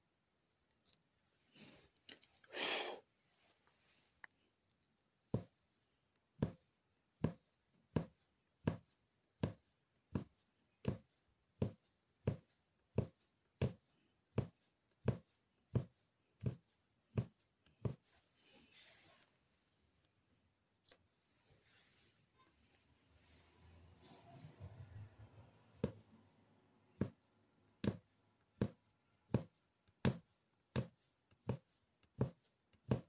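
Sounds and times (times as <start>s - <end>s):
needle punching through fabric: 5.3s - 18.2s, 26.9s - 33.0s.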